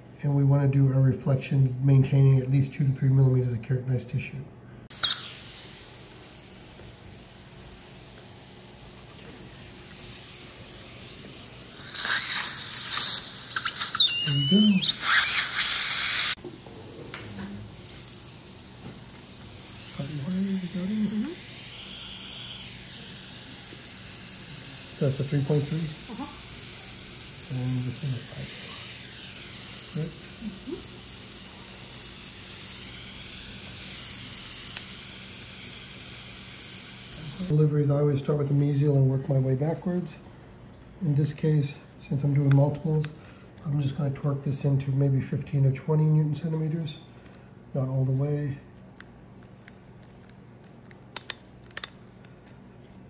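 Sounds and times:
dental suction hissing: 4.9 - 16.4, 17.7 - 37.5.

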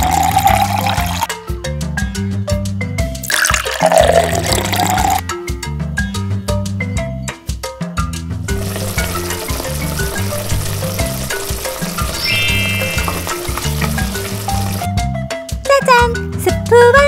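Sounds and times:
cheerful background music: 0.0 - 17.0
food frying sizzle: 8.5 - 14.9.

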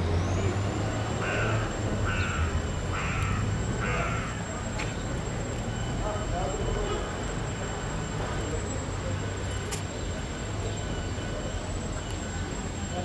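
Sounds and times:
crow cawing: 1.2 - 4.5.

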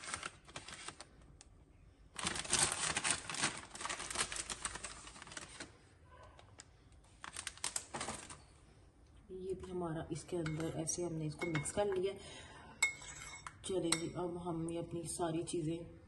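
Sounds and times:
plastic bag crinkling: 0.0 - 1.3, 2.1 - 5.9, 6.6 - 8.5.

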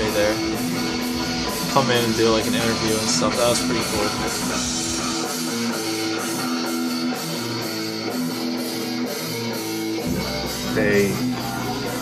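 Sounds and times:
guitar rock music: 0.0 - 12.0
deep bass: 10.0 - 11.9.

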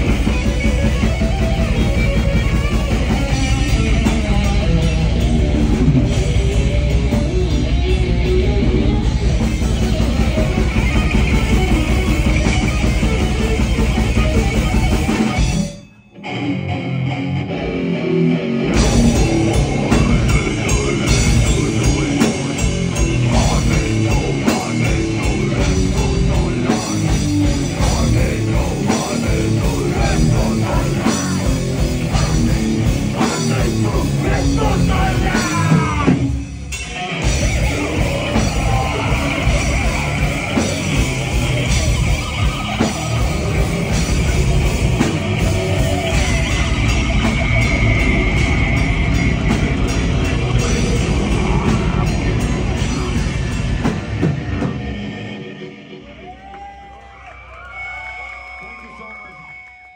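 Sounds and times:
live heavy metal band: 0.0 - 59.9.

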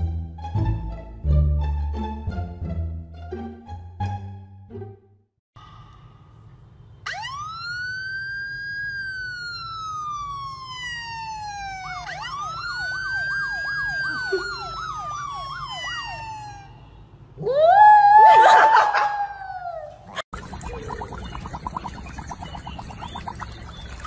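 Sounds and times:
siren wail and yelp: 7.0 - 20.2.

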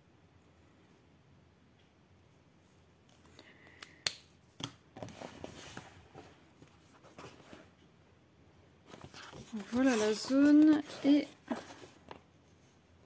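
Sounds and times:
paper rustling: 5.0 - 7.7, 8.9 - 12.4.

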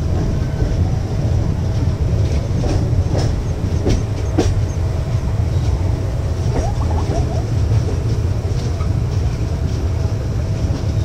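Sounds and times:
train rumbling: 0.0 - 11.0
train wheels clacking on rails: 0.0 - 11.0.

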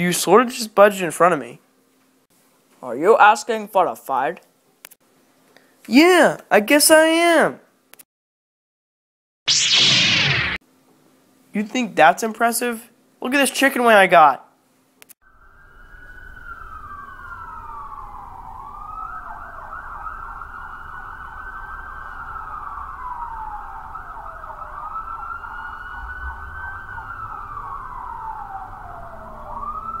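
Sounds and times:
ambulance siren wailing: 15.2 - 30.0.

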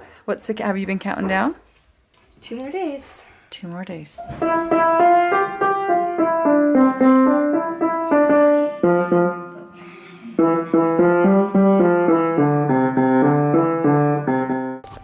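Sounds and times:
piano tune: 4.2 - 15.0.

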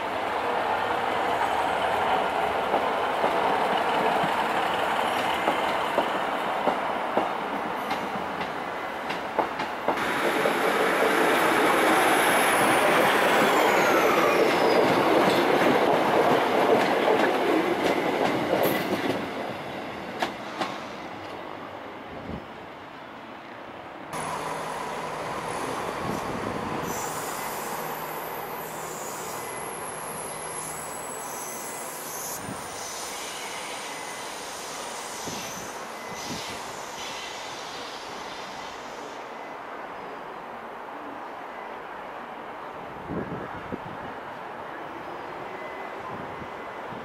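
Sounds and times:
train noise: 0.0 - 47.0
high squeal falling in pitch: 12.2 - 14.8, 26.8 - 37.4.

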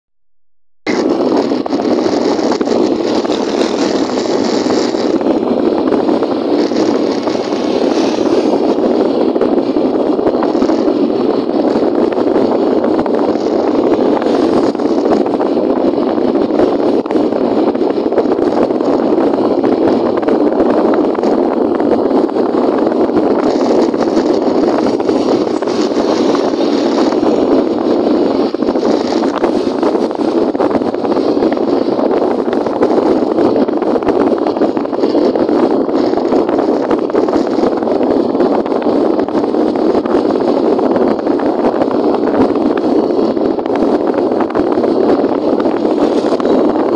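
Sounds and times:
motorcycle engine and wind noise: 0.9 - 46.9.

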